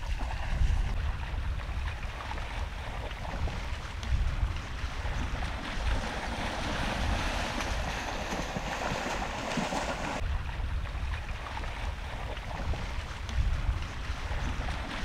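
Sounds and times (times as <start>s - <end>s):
bear splashing through water: 0.0s - 10.3s
creek water washing: 0.0s - 15.0s
wind rumble on microphone: 0.0s - 15.0s.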